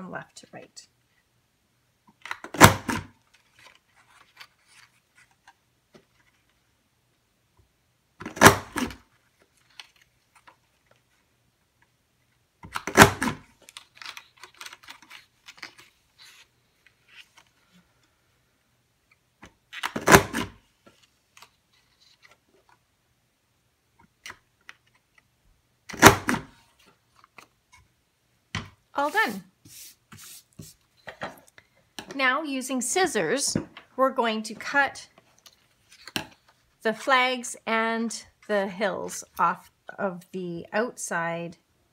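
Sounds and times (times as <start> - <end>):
paper rustling: 3.3 - 6.6, 13.6 - 17.8, 20.8 - 22.8.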